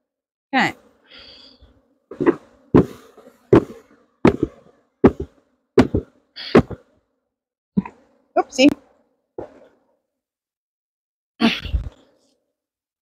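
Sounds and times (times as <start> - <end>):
wooden box knocks: 2.2 - 6.8.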